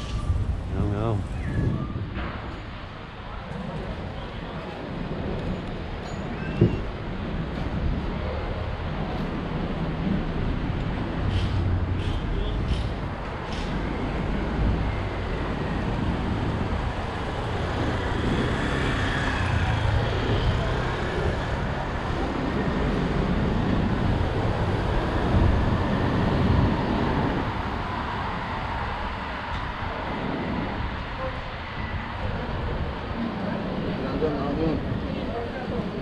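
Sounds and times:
town traffic with vehicles passing: 0.0s - 36.0s.

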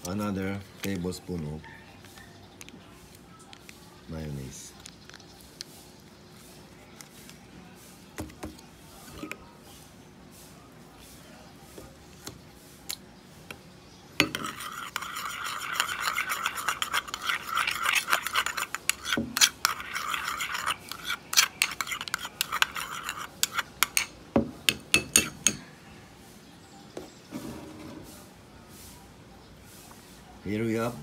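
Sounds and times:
spoon scraping ceramic bowl: 14.2s - 25.6s.

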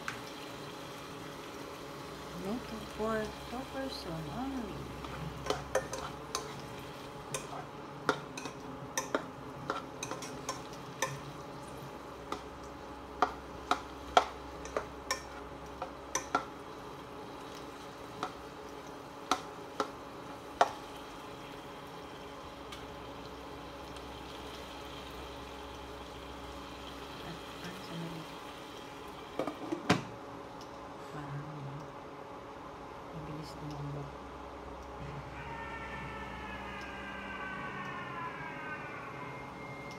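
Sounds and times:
food sizzling: 0.0s - 30.6s
spatula tapping a frying pan: 7.3s - 11.3s, 12.2s - 16.6s, 19.2s - 20.0s, 20.6s - 20.8s.

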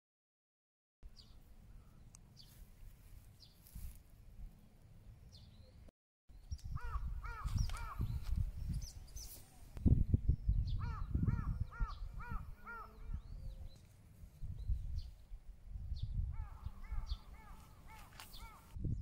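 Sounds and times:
wind rumble on microphone: 6.3s - 19.0s
crow cawing: 6.8s - 8.1s, 10.8s - 13.0s, 16.4s - 18.7s.

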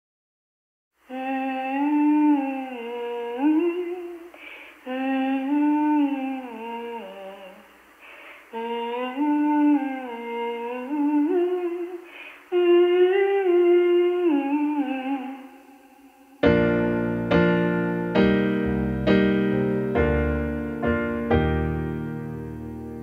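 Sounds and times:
woman humming: 1.1s - 7.7s, 8.5s - 17.0s
digital piano chords: 16.4s - 23.0s.

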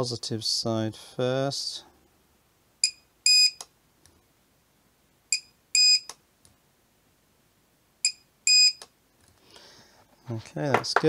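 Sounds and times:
spot welder beeps: 2.8s - 3.6s, 5.3s - 6.1s, 8.1s - 8.9s.

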